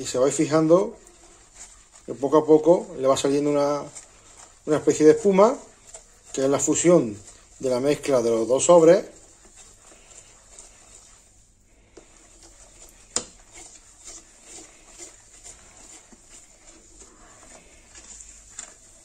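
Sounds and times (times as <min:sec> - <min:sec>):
spoon scraping and tapping a pan: 0:11.9 - 0:16.8.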